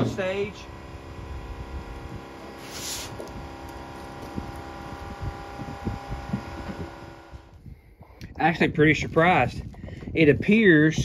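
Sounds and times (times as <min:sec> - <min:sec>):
steady machine hum: 0:00.0 - 0:07.7
short hiss: 0:02.6 - 0:03.2.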